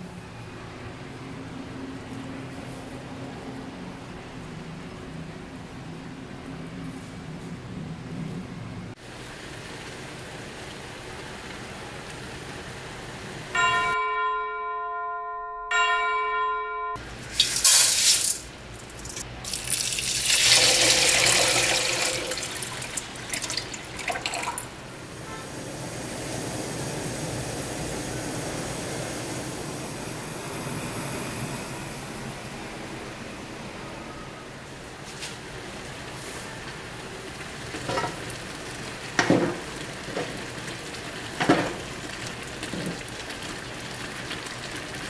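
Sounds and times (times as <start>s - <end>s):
boiling hiss: 8.9s - 13.6s, 17.2s - 45.0s
water pouring into pan: 17.3s - 24.7s, 37.8s - 45.0s.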